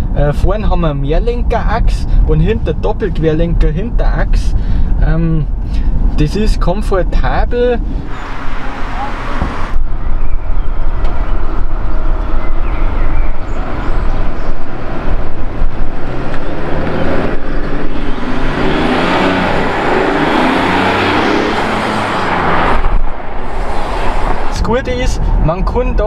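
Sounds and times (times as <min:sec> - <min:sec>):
diesel car driving past: 0:07.8 - 0:24.6.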